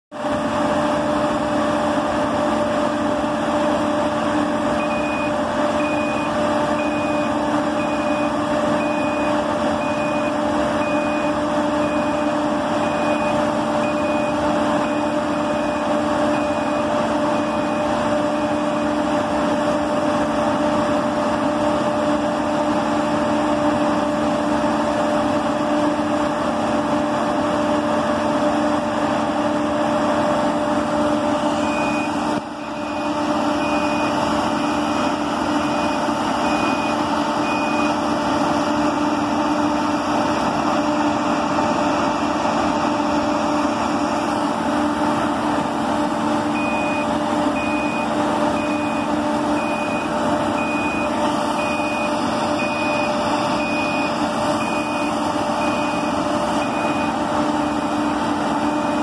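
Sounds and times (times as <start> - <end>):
drilling rig machine hum: 0.1 - 59.0
high warning beeper: 4.6 - 19.0, 31.5 - 44.4, 46.5 - 59.0.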